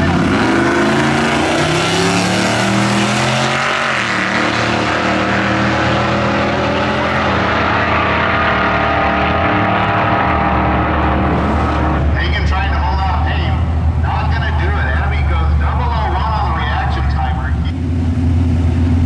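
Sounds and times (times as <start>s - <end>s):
racing cars accelerating hard: 0.0s - 12.2s.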